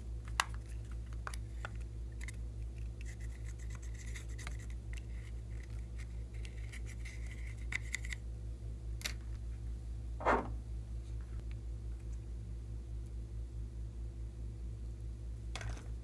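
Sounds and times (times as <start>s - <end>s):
steady low hum: 0.0s - 16.0s
loud knock: 10.2s - 10.6s.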